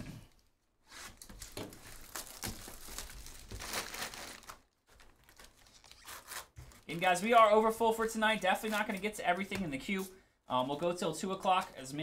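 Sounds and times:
plastic wrap crinkling and tearing: 0:01.1 - 0:10.1.

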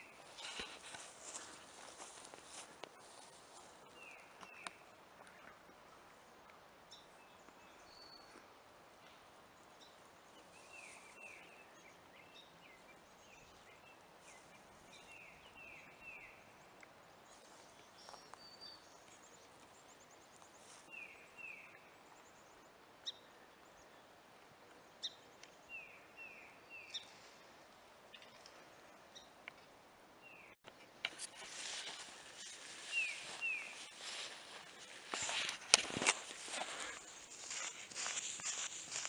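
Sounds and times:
small birds calling: 0:31.2 - 0:39.0.

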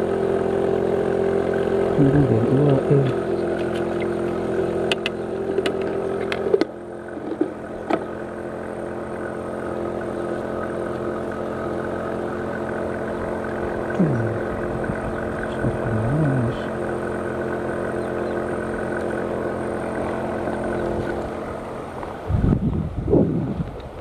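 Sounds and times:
engine-like hum: 0:00.0 - 0:24.0
sharp clicks and knocks: 0:04.8 - 0:08.1.

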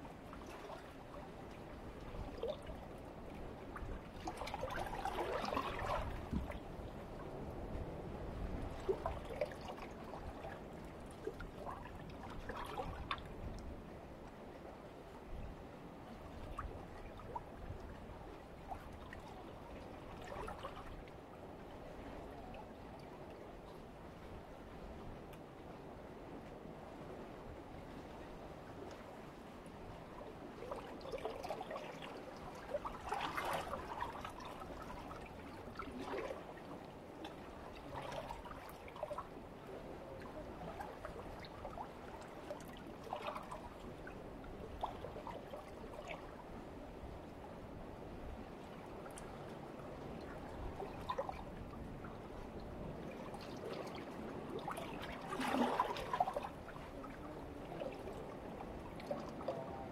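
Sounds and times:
small water splashes: 0:00.0 - 0:07.6, 0:08.4 - 0:13.9, 0:16.2 - 0:21.3, 0:29.9 - 0:46.5, 0:48.4 - 0:59.9
water lapping among rocks: 0:00.1 - 0:13.8, 0:28.8 - 0:46.9, 0:48.3 - 0:59.9.

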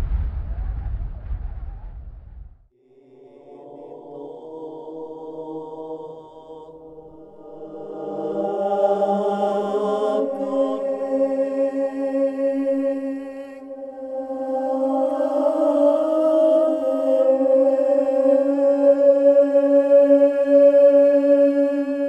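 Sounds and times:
ambient drone music: 0:06.9 - 0:22.0.

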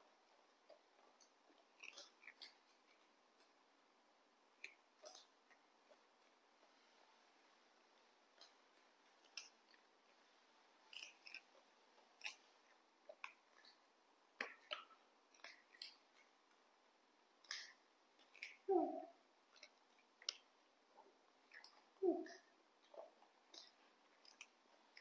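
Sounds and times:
monkeys crunching snack sticks: 0:01.1 - 0:03.6, 0:08.3 - 0:09.9, 0:10.8 - 0:13.8, 0:17.4 - 0:25.0.

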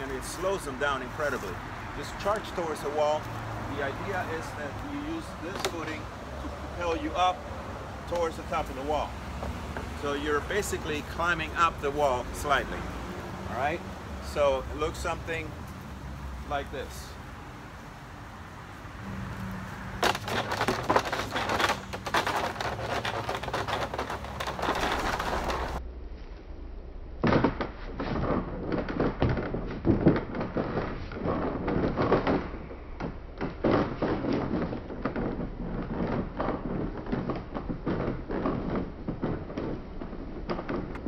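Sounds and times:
knocks and scrapes on wooden wall: 0:20.0 - 0:25.8.

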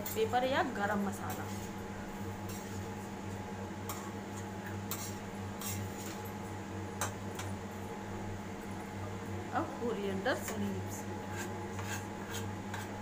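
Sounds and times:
steady low hum: 0:00.0 - 0:13.0
metal spatula stirring in pan: 0:04.9 - 0:06.2, 0:11.3 - 0:13.0.

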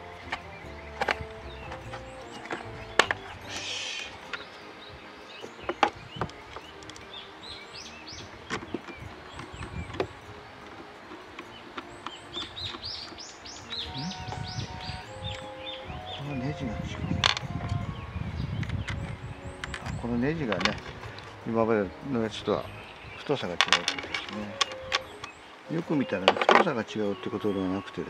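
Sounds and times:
birds chirping: 0:00.0 - 0:28.0
metal tools clicking and knocking: 0:23.3 - 0:25.3.

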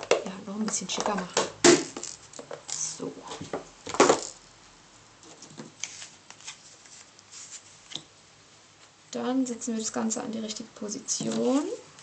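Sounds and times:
calendar pages rustling: 0:05.2 - 0:08.0.

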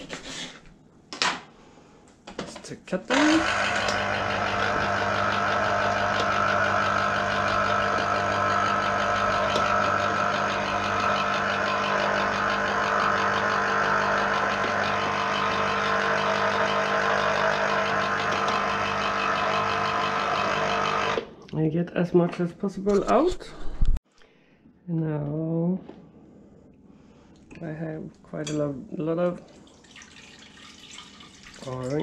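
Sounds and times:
electric citrus juicer running: 0:03.1 - 0:21.3.

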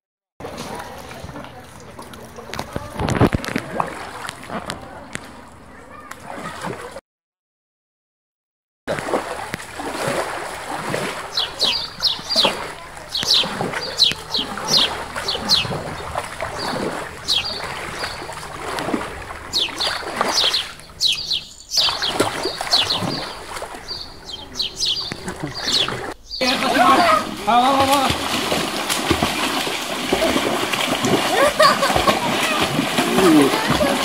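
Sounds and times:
water splashing in a pool: 0:00.4 - 0:07.0, 0:08.9 - 0:34.0
birds chirping: 0:10.7 - 0:34.0.

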